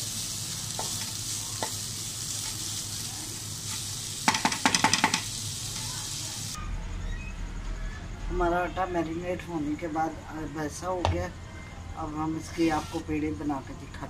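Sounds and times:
meat sizzling in a frying pan: 0.0 - 6.6
spatula scraping and tapping pan: 3.7 - 5.3.

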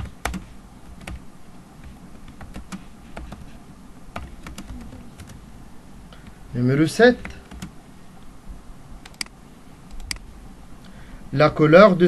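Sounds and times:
computer keyboard typing: 0.0 - 1.2, 1.8 - 5.4, 7.2 - 7.8, 9.0 - 9.3.

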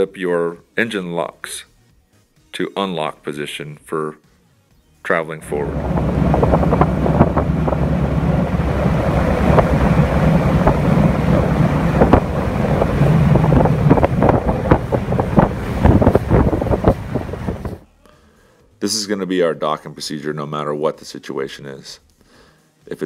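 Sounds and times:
boat outboard engines running: 5.4 - 17.8
water slapping and splashing on hull: 5.4 - 17.8
wind buffeting microphone: 5.4 - 17.8.

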